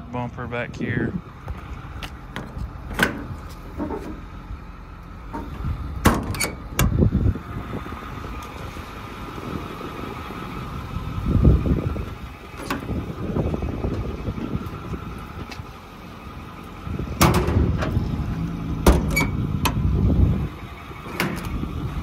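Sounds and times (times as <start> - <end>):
diesel engine idling: 0.0 - 22.0
metal latch clicks and clunks: 2.3 - 4.2, 5.3 - 7.0, 17.2 - 18.0, 18.8 - 19.8, 21.1 - 21.6.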